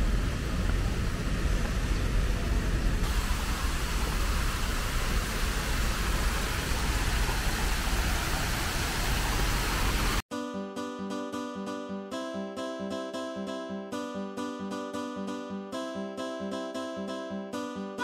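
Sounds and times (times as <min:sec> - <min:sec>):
low traffic rumble: 0:00.0 - 0:10.2
fountain water cascading: 0:03.0 - 0:10.2.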